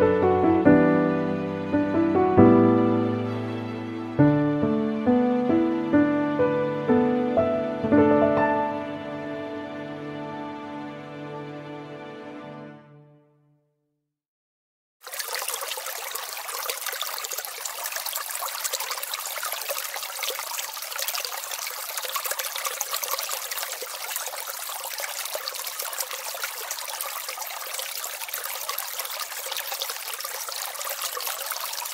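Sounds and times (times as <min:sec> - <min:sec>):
water trickling: 0:15.0 - 0:31.9.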